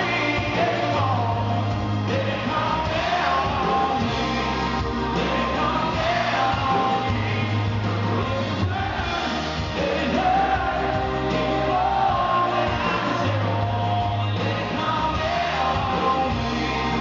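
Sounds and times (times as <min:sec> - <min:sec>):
low bass notes: 0:00.0 - 0:17.0
man singing: 0:00.0 - 0:17.0.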